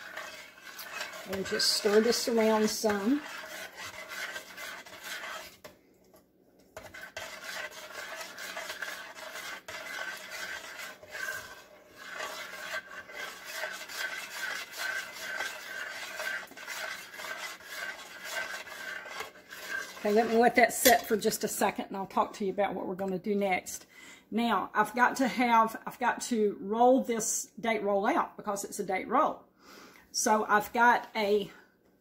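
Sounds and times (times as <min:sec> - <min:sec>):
spoon scraping a steel pot: 0:00.0 - 0:05.7, 0:06.8 - 0:21.3.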